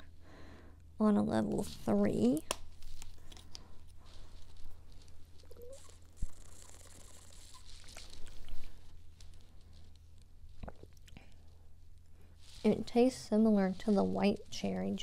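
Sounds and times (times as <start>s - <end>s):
sipping and swallowing: 10.6s - 11.3s.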